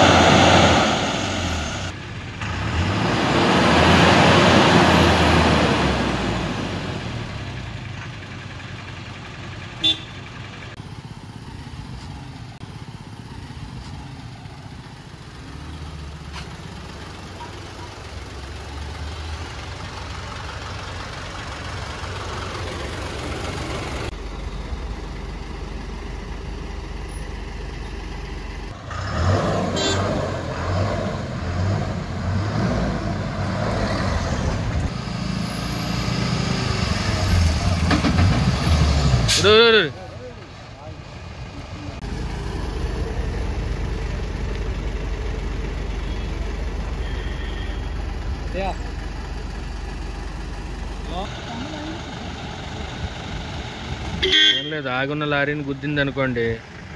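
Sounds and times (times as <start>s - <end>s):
truck diesel engine running: 0.0s - 56.9s.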